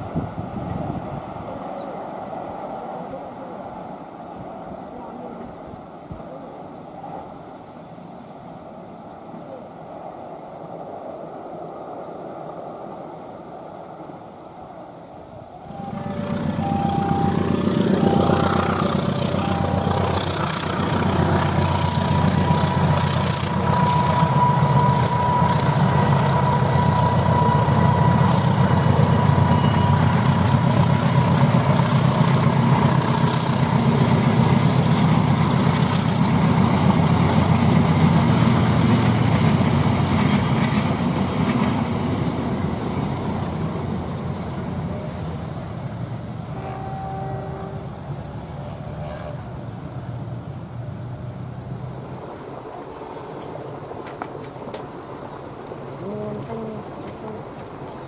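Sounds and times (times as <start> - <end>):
diesel locomotive engine rumble: 0.0 - 58.0
wheel and rail noise: 0.0 - 58.0
level-crossing alarm tones: 15.7 - 20.8.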